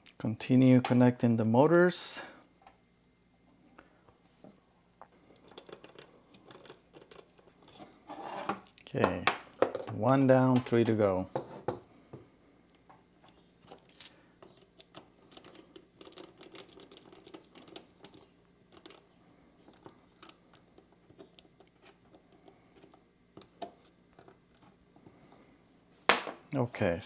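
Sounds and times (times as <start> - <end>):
wire leads being handled: 5.2 - 8.9, 13.2 - 25.1.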